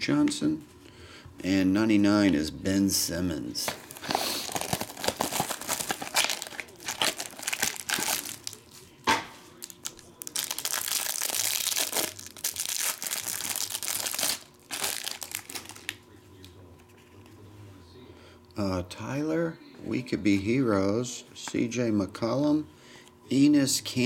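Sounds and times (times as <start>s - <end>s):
plastic wrapper crinkling and tearing: 3.7s - 8.9s, 9.6s - 16.0s.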